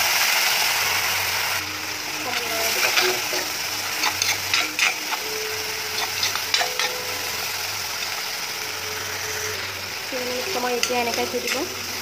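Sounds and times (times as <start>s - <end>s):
frying sizzle: 0.0s - 12.0s
metal spatula scraping paste: 4.0s - 5.2s.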